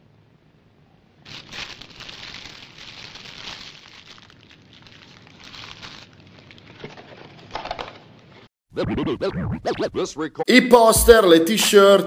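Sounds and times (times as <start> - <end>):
paper crumpling: 1.2 - 8.3.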